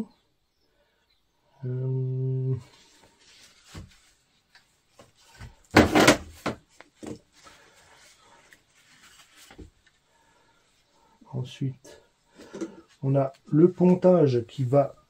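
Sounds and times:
parts clattering: 0:05.1 - 0:07.4.

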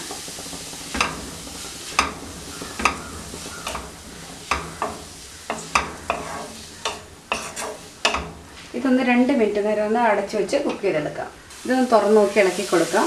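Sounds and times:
spatula scraping a pan: 0:00.0 - 0:08.8
vegetables sizzling in a pan: 0:00.0 - 0:13.0.

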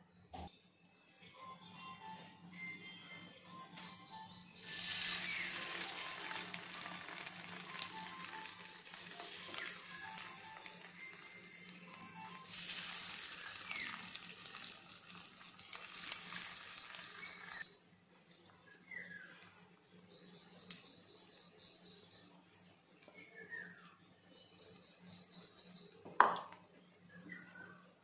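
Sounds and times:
bread sizzling in hot oil: 0:04.6 - 0:17.6.

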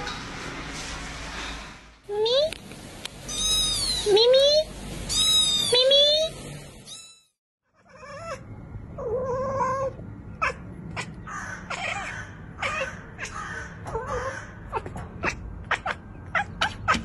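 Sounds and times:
cat chattering: 0:09.0 - 0:17.0.

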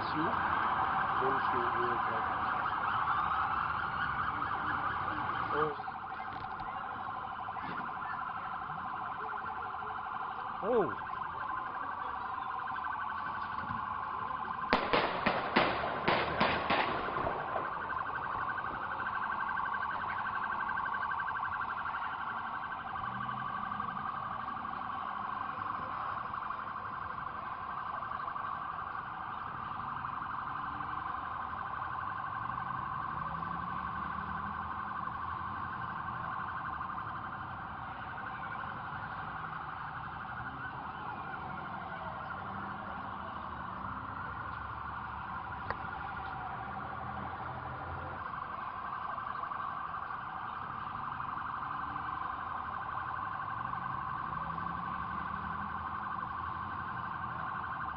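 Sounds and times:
fast-pulsing electronic alarm tone: 0:00.0 - 0:14.8
gliding siren tones: 0:00.0 - 0:57.9.

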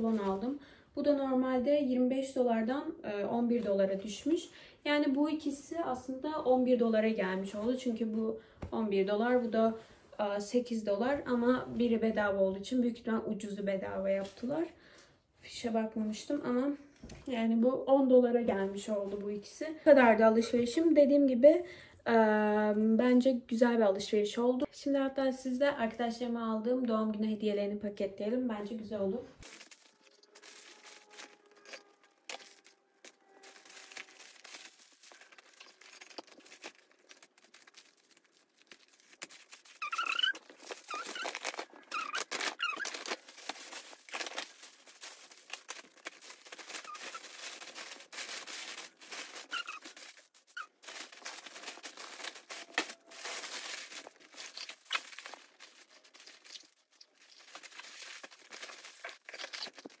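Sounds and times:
tissue paper rustling: 0:29.4 - 1:00.0
short squeaky sounds: 0:39.6 - 0:43.3, 0:46.6 - 0:47.4, 0:49.3 - 0:50.9, 0:59.0 - 1:00.0.

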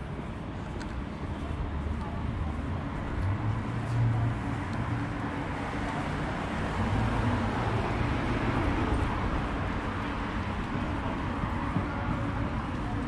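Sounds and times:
hum of passing vehicles: 0:01.4 - 0:13.0.

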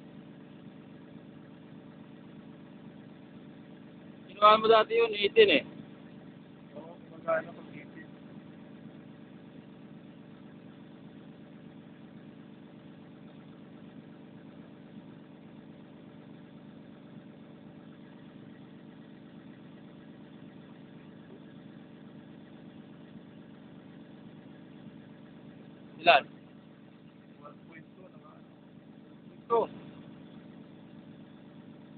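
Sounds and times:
diesel excavator engine idling: 0:00.0 - 0:31.9.

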